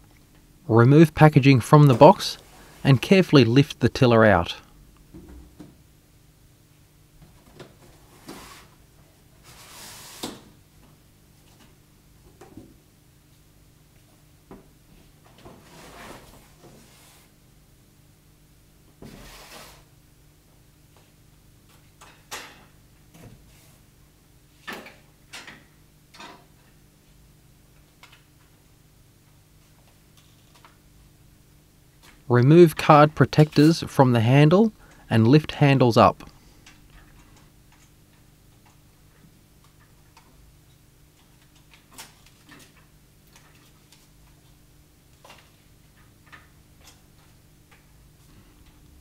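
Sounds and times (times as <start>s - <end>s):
low steady hum: 0.0s - 8.2s, 22.8s - 49.0s.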